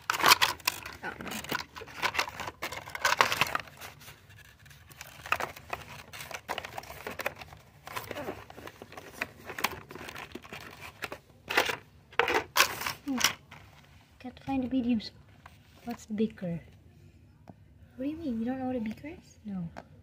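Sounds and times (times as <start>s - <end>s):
plastic packaging crinkling: 0.0s - 13.6s
plastic pieces rattling: 0.0s - 13.6s.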